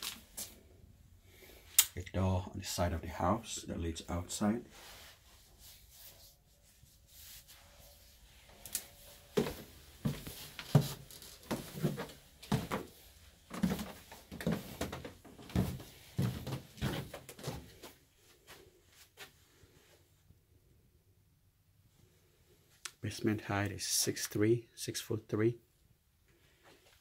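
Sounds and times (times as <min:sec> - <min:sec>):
footsteps on stairs: 0:09.3 - 0:17.9.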